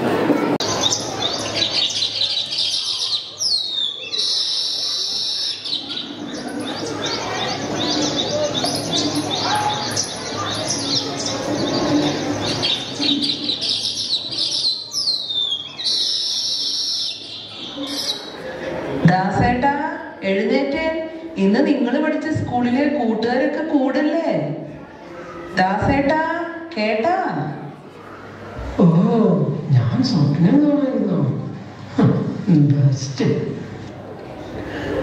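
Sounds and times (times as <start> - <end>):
recorded birdsong over loudspeakers: 0.0 - 27.8, 28.6 - 33.8
falling whistle: 4.2 - 5.6, 15.7 - 17.2.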